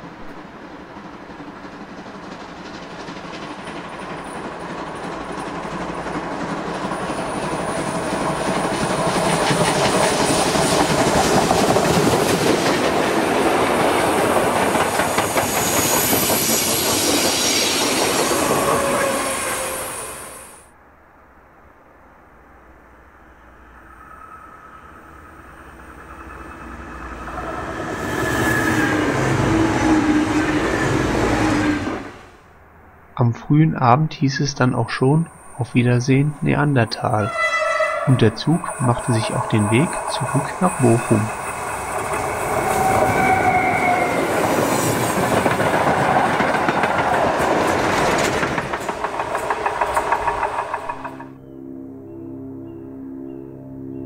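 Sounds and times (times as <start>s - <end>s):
diesel train passing: 0.0s - 54.0s
train whine: 0.0s - 54.0s.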